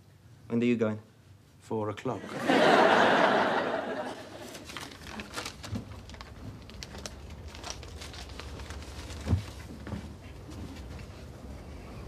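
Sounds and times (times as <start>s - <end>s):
faint taps and rustles: 8.9s - 11.4s.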